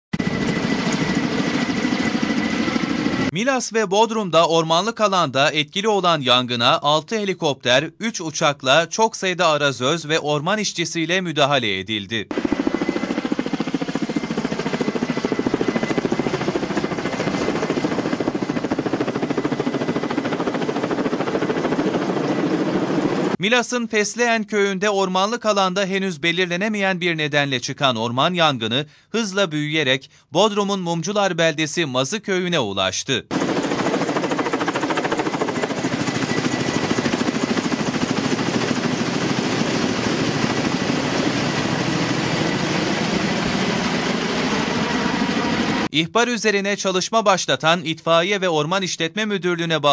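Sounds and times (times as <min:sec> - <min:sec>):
helicopter rotor chopping: 0:00.2 - 0:03.4, 0:12.3 - 0:23.4, 0:33.3 - 0:45.9
high turbine whine: 0:12.3 - 0:23.4, 0:33.3 - 0:45.9.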